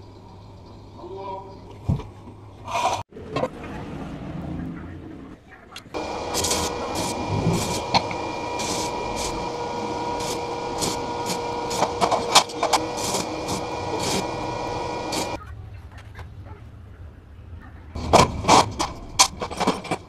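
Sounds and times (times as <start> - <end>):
steady hum: 5.9 - 15.4
welding arc crackling sizzle: 6.0 - 15.4.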